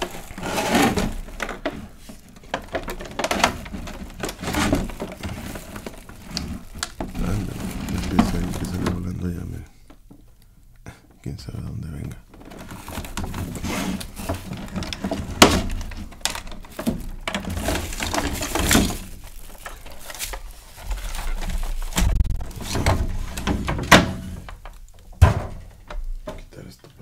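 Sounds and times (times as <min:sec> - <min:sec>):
plastic packaging crinkling: 0:00.0 - 0:10.4, 0:12.2 - 0:25.1
plastic clicks and knocks: 0:00.9 - 0:07.3.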